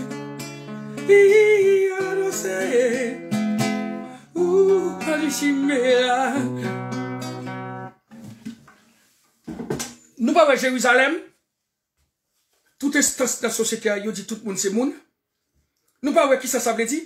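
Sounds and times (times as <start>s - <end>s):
man singing: 0.0s - 6.8s
guitar chords: 0.0s - 8.0s.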